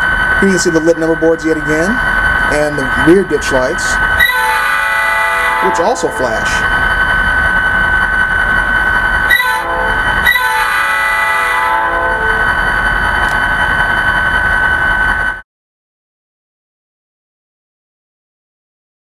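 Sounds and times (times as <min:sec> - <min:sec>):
diesel engine idling: 0:00.0 - 0:10.8
model train air horn chord: 0:04.2 - 0:06.6, 0:09.3 - 0:12.5.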